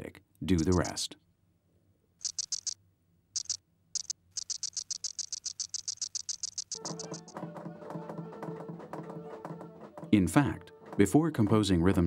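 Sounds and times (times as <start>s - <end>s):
cicada clicking: 0.6s - 1.0s, 2.2s - 2.8s, 3.4s - 7.4s.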